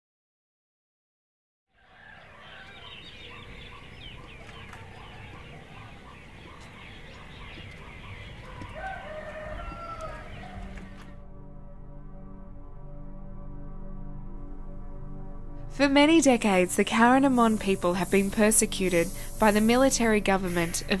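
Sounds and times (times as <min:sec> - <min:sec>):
rooster crowing: 0:01.7 - 0:11.2
small birds chirping: 0:01.8 - 0:11.0.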